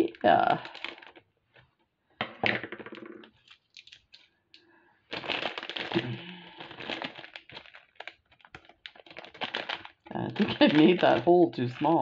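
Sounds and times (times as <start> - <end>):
plastic bag crinkling: 0.0 - 1.3, 3.3 - 4.2, 5.1 - 12.0.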